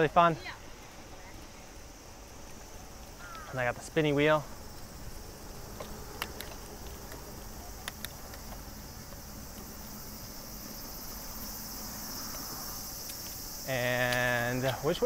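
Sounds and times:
insect chorus: 0.0s - 15.0s
sharp clicks: 7.8s - 8.6s.

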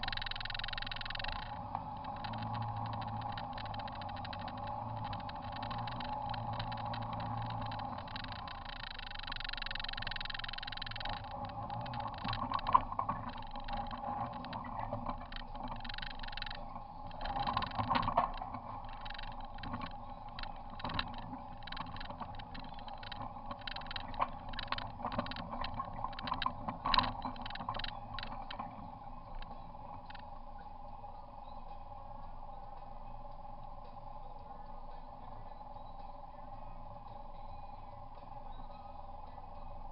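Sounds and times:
knocks and rattles over bumps: 0.0s - 30.2s
off-road vehicle engine drone: 0.0s - 39.9s.

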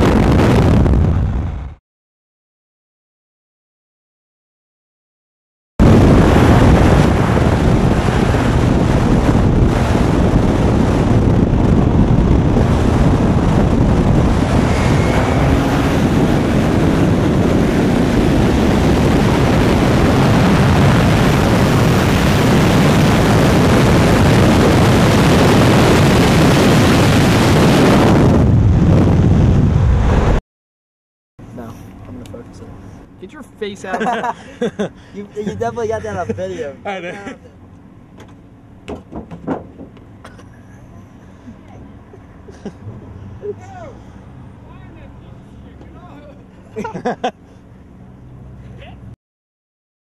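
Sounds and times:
wind buffeting microphone: 0.0s - 1.7s, 5.8s - 30.4s
car engine at full throttle: 5.8s - 30.4s, 31.4s - 49.1s.

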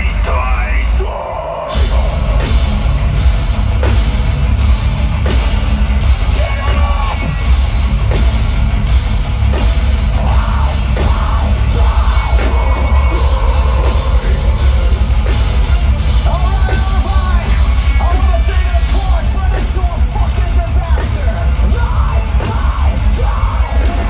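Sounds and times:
metal band playing live: 0.0s - 24.0s
person singing: 10.2s - 15.3s.

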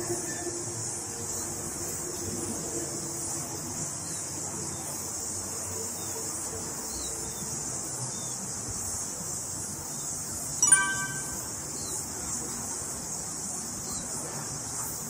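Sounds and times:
faint chirps: 10.6s - 11.9s.

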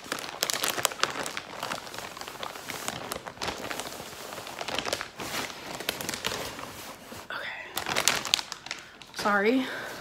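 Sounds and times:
plastic packaging crinkling: 0.0s - 9.6s.

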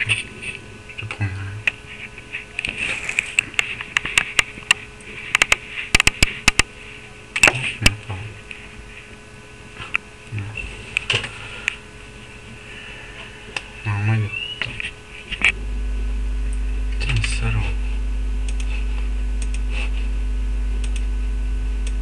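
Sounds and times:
faint steady hum: 0.0s - 22.0s
sharp clicks and taps: 3.6s - 6.7s.

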